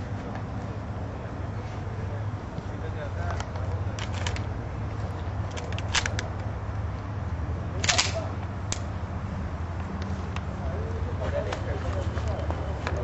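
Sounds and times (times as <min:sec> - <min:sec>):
metallic clicks of pistol handling: 0:03.4 - 0:04.5, 0:05.5 - 0:06.5, 0:07.8 - 0:08.9.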